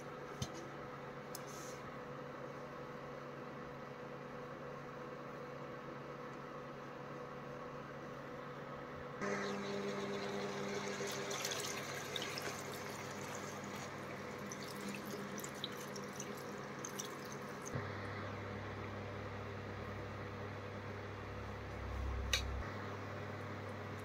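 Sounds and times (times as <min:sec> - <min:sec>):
steady low hum: 0:00.0 - 0:24.0
water pouring into metal pot: 0:09.4 - 0:17.8.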